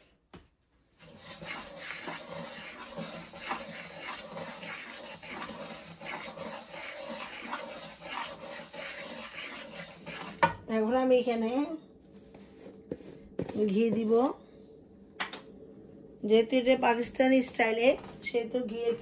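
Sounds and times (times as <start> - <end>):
spatula scraping frying pan: 1.0 - 10.5.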